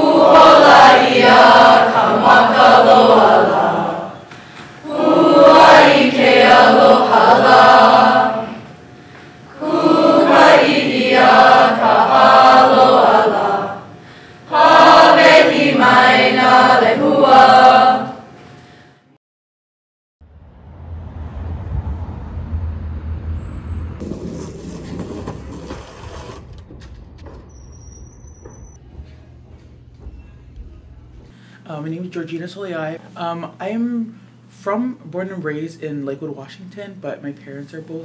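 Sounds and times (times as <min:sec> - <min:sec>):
group singing unaccompanied chant: 0:00.0 - 0:08.7, 0:09.5 - 0:18.3.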